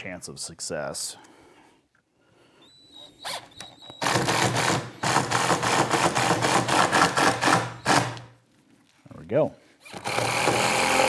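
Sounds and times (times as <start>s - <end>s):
cordless driver driving screw: 9.8s - 11.0s.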